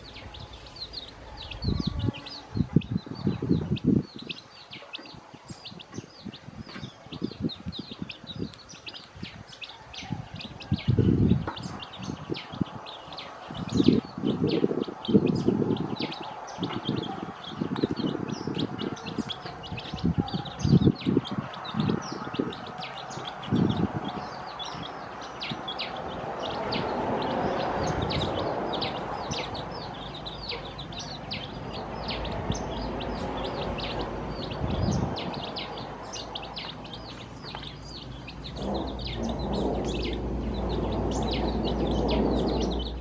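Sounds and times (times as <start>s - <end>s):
chicks peeping: 0.0s - 43.0s
loud low thumps: 38.3s - 43.0s.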